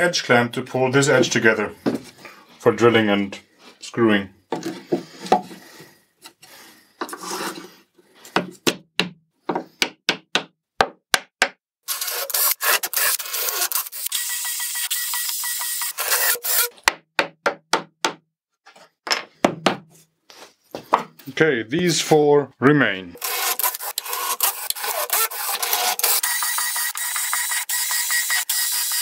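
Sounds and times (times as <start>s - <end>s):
hammer tapping wooden wedges: 8.3s - 11.6s.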